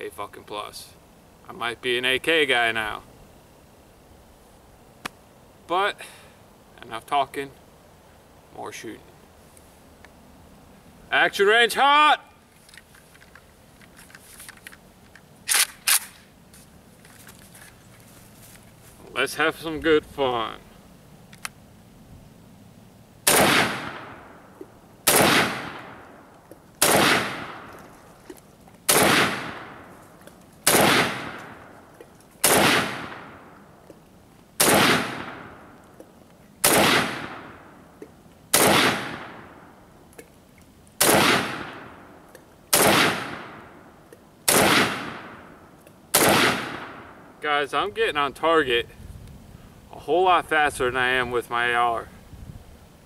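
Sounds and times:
rifle shots echoing: 23.2 - 26.2, 26.8 - 27.7, 28.9 - 29.9, 30.6 - 31.8, 32.4 - 33.5, 34.6 - 35.8, 36.6 - 37.7, 38.5 - 39.7, 41.0 - 42.1, 42.7 - 43.8, 44.5 - 47.3.

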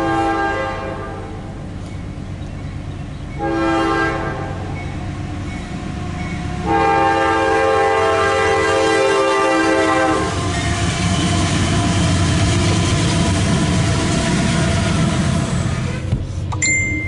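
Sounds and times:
locomotive air horn blast: 0.0 - 1.5, 3.4 - 4.7, 6.6 - 12.2, 14.3 - 16.4
locomotive engine running: 0.0 - 17.0
train wheel noise: 0.0 - 17.0.

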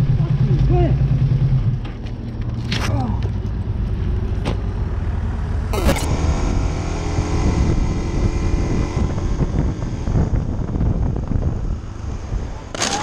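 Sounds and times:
wind buffeting microphone: 6.2 - 12.8.

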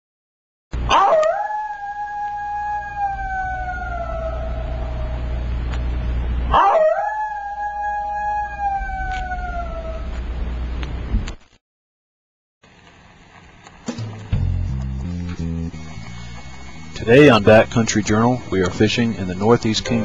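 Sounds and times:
howling animal calls: 0.8 - 10.3, 15.7 - 20.0
low steady rumble: 0.8 - 11.4, 12.6 - 20.0.

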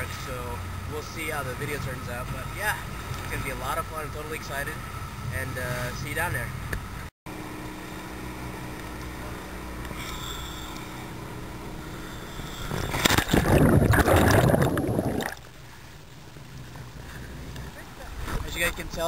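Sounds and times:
boat engine idling: 7.3 - 18.2
sea noise: 9.4 - 18.4
water sloshing: 12.7 - 15.6
loud splashing water: 12.9 - 15.5.

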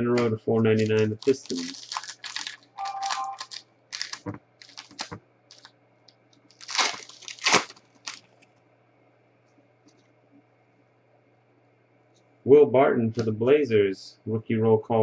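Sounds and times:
cards ticking when handled: 0.2 - 5.7
wrapper crinkling and tearing: 0.2 - 5.7, 6.5 - 8.4.

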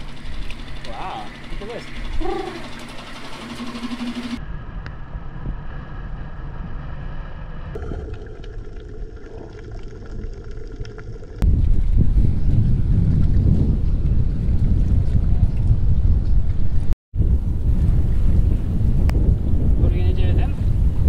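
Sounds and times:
outboard motor running: 0.0 - 4.4
water noise: 0.0 - 4.4, 7.8 - 16.1
wind: 0.0 - 21.0.

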